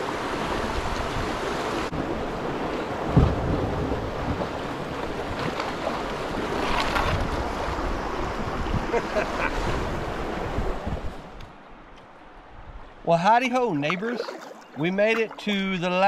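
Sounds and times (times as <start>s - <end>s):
wind buffeting microphone: 0.5s - 13.0s
river rapid rushing: 13.5s - 16.0s.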